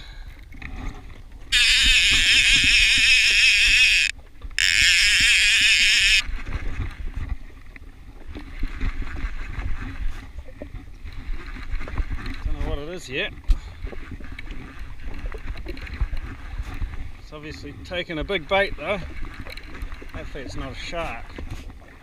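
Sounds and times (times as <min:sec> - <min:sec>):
fishing reel clicker buzzing: 0:01.5 - 0:06.3.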